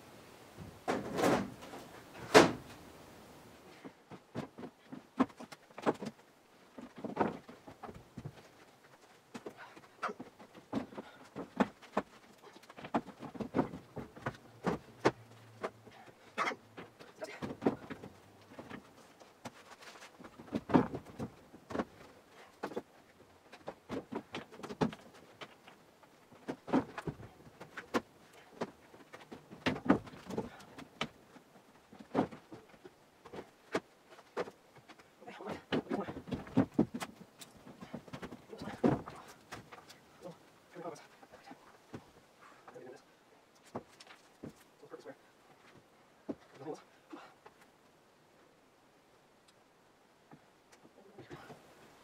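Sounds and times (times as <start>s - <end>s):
footsteps on loose floorboards: 3.8s - 16.1s, 16.7s - 40.2s.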